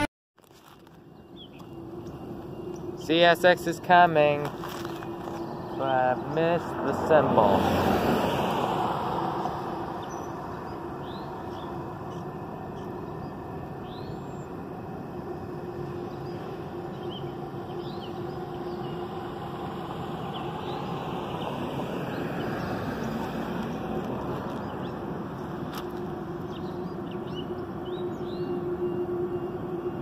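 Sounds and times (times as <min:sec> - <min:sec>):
car passing: 0:01.2 - 0:30.0.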